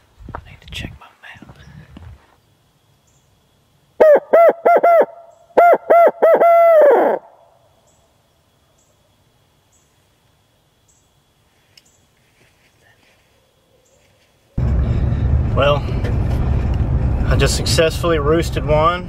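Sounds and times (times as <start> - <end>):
owl call hoots: 4.0 - 7.5.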